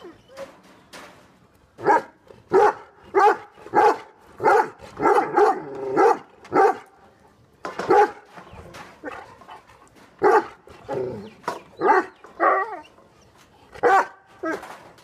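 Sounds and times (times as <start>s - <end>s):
dogs barking angrily: 1.8s - 7.0s, 7.7s - 8.4s, 9.0s - 12.8s, 13.7s - 15.0s.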